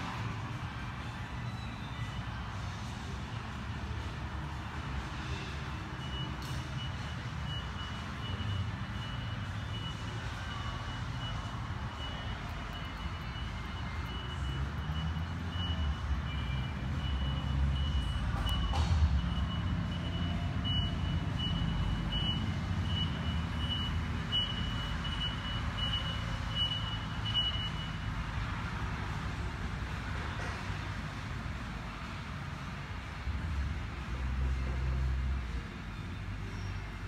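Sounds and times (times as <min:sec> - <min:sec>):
reversing alarm beeping: 0:05.3 - 0:28.4.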